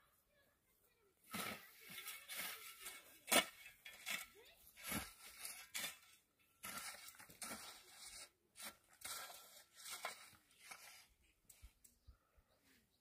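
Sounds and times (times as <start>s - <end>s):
shovel scraping dry grass: 1.3s - 11.2s.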